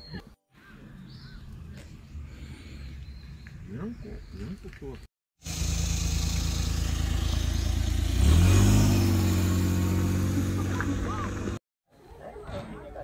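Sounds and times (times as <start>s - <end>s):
engine revving up: 5.4s - 11.6s.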